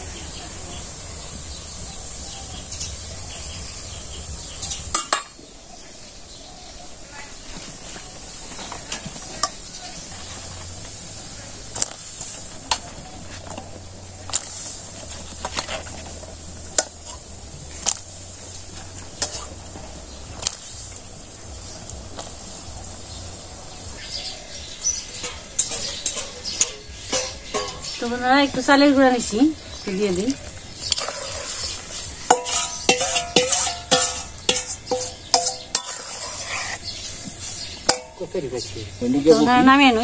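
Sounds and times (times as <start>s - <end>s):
vegetables being stirred: 7.4s - 24.2s, 24.8s - 40.0s
spoon knocking against pot: 32.3s - 36.0s.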